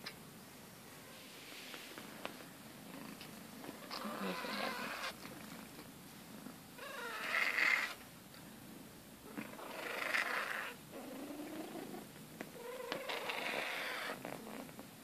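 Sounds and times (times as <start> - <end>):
cat purring: 2.3 - 8.0, 9.2 - 14.9
cat low moan: 3.8 - 5.2.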